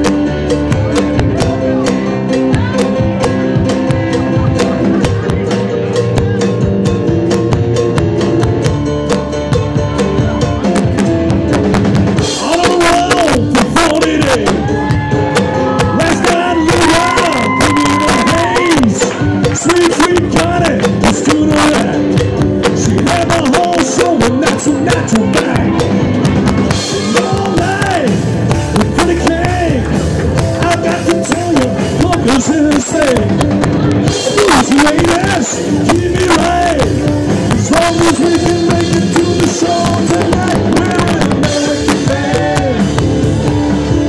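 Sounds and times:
drum kit: 0:00.0 - 0:44.0
guitar: 0:00.0 - 0:44.0
live band playing: 0:00.0 - 0:44.0
piano: 0:00.0 - 0:44.0
person singing: 0:26.7 - 0:30.0, 0:30.6 - 0:44.0.

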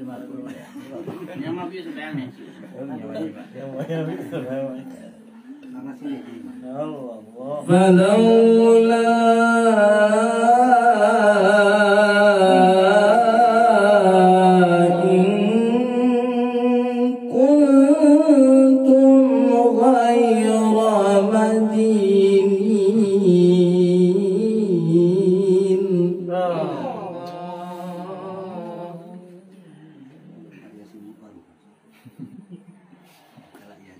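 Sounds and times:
man reciting melodically: 0:06.0 - 0:30.6.

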